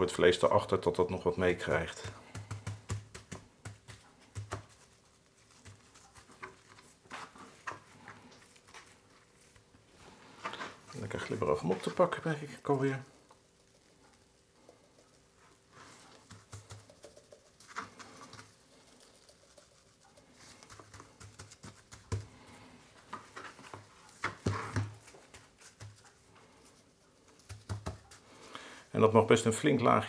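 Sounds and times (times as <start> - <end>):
spice sprinkling onto meat: 10.9 - 24.2.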